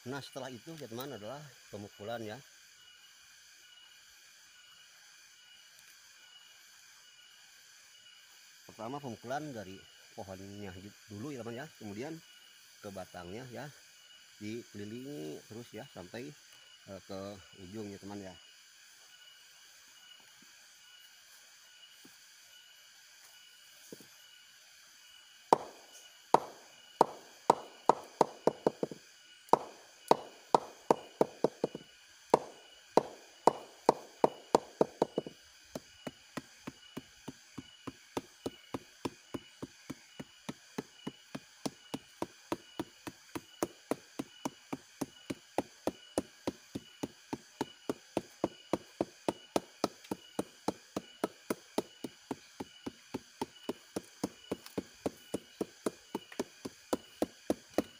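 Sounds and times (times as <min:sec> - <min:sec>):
mallet knocking on palm stalk: 0:25.6 - 0:25.8, 0:26.4 - 0:31.8, 0:32.4 - 0:35.3.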